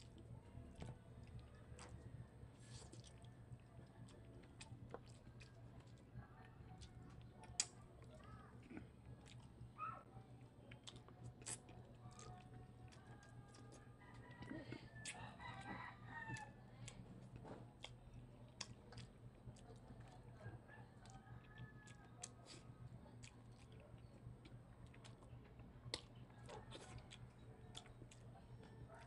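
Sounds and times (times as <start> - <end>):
quiet eating sounds: 0.0 - 29.0
rooster crowing faintly: 12.2 - 17.6, 20.1 - 22.8, 26.2 - 29.0.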